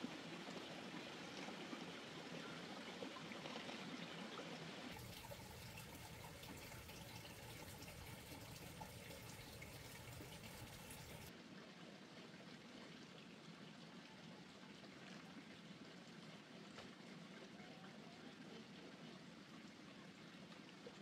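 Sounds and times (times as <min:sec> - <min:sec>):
water trickling: 0:00.0 - 0:11.3.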